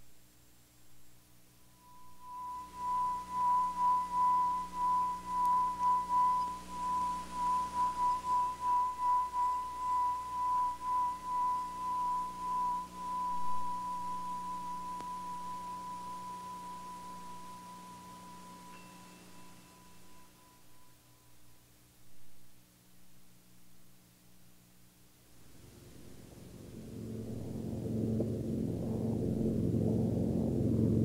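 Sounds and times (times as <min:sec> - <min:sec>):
high pulsing pure tone: 0:01.6 - 0:21.6, 0:25.4 - 0:31.0.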